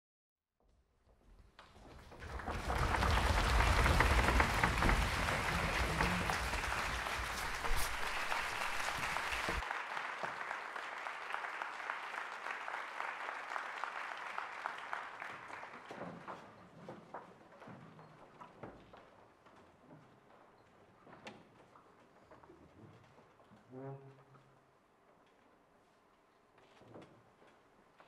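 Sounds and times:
audience applauding: 2.1s - 16.4s.

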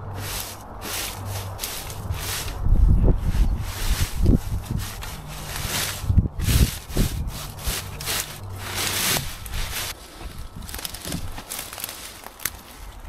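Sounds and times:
rustling: 0.0s - 13.0s
digging tool chopping soil: 3.4s - 12.7s.

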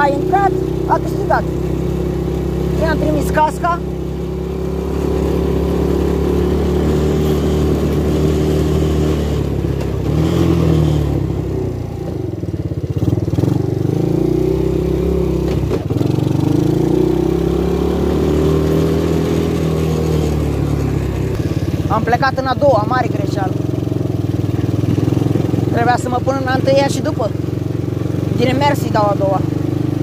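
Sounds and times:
atv engine revving: 0.0s - 30.0s.

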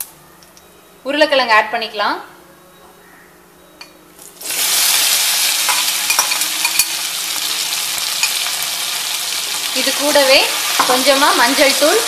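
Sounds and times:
potatoes sizzling in hot oil: 4.4s - 12.0s
metal ladle clinking on pan: 5.7s - 6.9s.

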